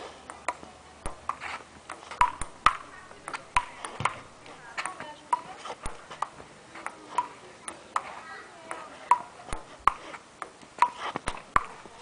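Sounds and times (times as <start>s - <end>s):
table tennis ball knocks: 0.3s - 4.2s.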